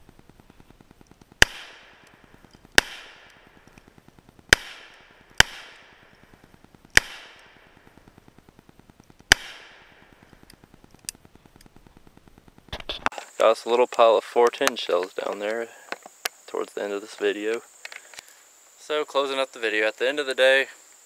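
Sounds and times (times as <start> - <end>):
revolver shots with echo: 1.4 - 2.1, 2.8 - 3.4, 4.5 - 6.0, 7.0 - 7.8, 9.3 - 10.1.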